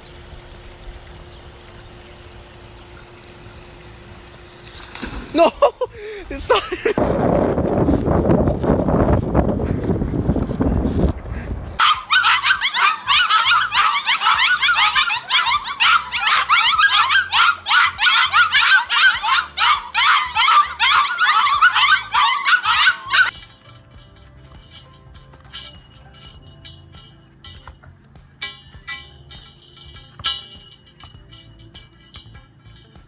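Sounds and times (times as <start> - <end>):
wind on microphone: 6.8 - 11.8
puppies yipping and whining: 11.8 - 23.6.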